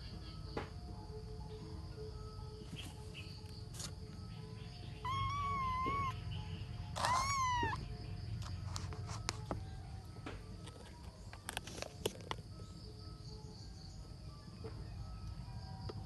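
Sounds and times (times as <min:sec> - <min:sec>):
kitten meowing: 0:05.0 - 0:06.2, 0:07.0 - 0:07.8.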